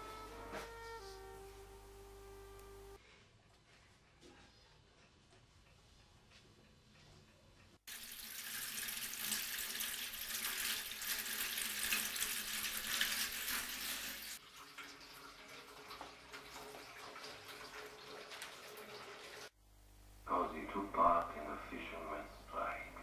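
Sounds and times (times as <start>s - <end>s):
tap water running into sink: 7.9s - 19.5s.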